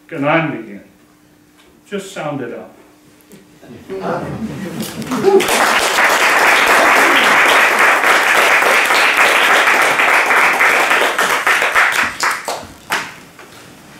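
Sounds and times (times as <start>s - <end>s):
audience applauding: 4.7s - 13.2s.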